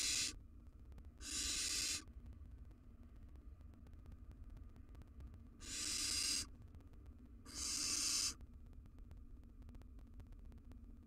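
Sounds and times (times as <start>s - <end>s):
owl nestlings hissing calls: 0.0s - 0.4s, 1.2s - 2.0s, 5.6s - 6.5s, 7.5s - 8.4s.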